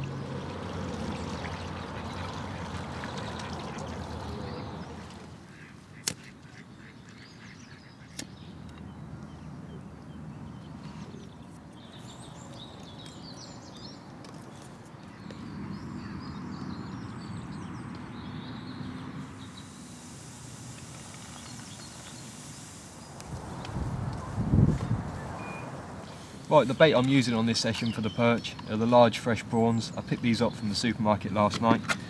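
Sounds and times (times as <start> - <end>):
ducks quacking: 1.6 - 8.2
steady hiss: 19.1 - 27.8.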